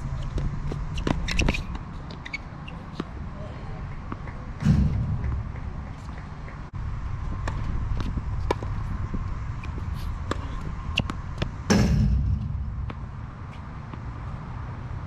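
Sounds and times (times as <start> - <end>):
tennis ball hits and bounces: 0.4 - 3.2, 3.9 - 6.7, 7.3 - 9.0, 9.6 - 14.4
wind rumbling on microphone: 4.6 - 15.0.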